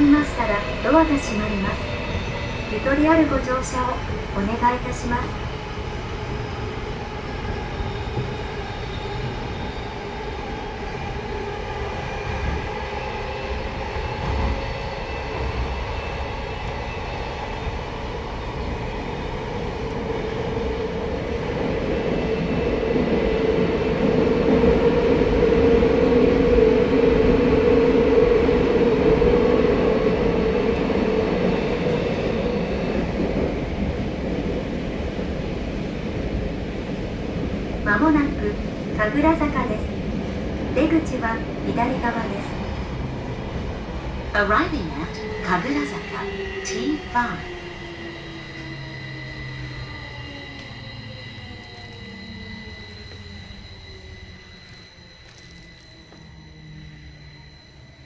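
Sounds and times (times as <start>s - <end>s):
train wheels on rails: 0.0s - 58.0s.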